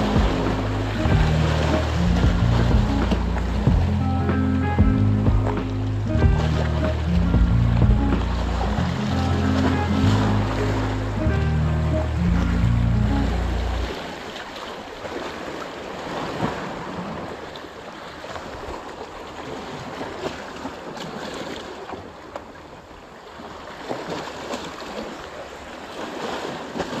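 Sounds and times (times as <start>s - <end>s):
wind noise on microphone: 0.0s - 14.0s
sea waves washing: 0.0s - 27.0s.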